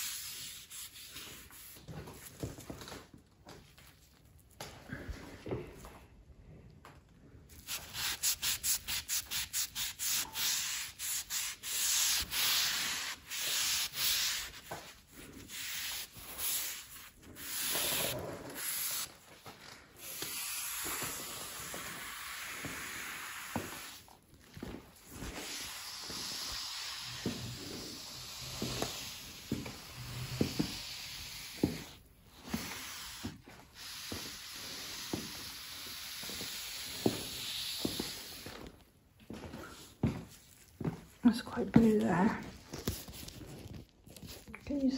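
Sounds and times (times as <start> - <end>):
cloth scrubbing a worktop: 7.6 - 19.2, 25.0 - 38.5.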